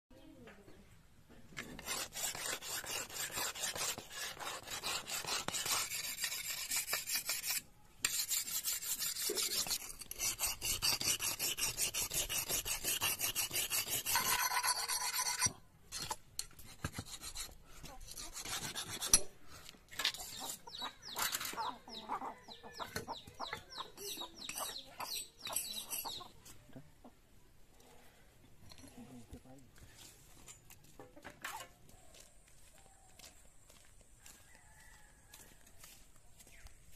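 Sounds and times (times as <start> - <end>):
blade scraping on sharpening stone: 1.6 - 19.3, 22.8 - 26.3.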